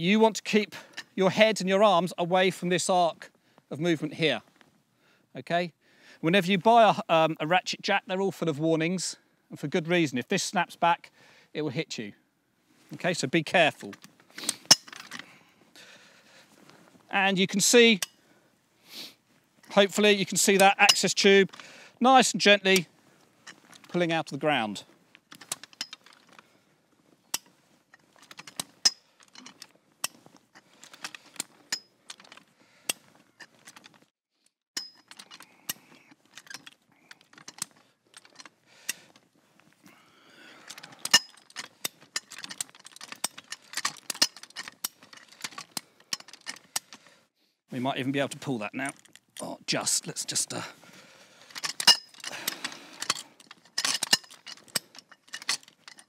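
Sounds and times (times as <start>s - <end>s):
metal chain clinking and jangling: 25.3s - 26.4s, 27.4s - 32.5s, 34.8s - 38.5s, 40.7s - 46.9s, 51.5s - 56.0s.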